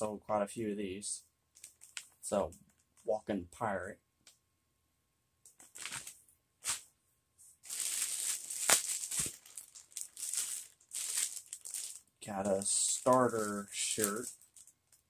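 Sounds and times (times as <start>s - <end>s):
plastic bags crinkling: 1.6s - 2.1s, 5.6s - 6.8s, 7.6s - 15.0s.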